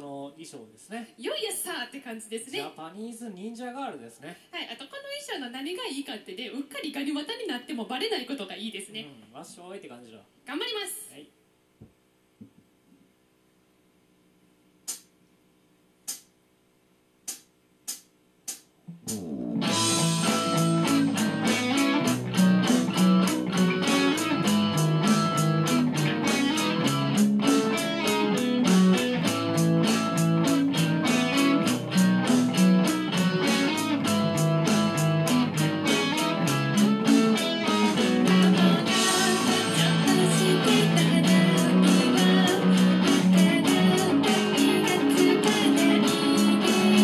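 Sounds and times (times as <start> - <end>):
drums: 17.3 - 47.0
bass guitar: 18.8 - 47.0
electric guitar playing a ballad: 19.1 - 47.0.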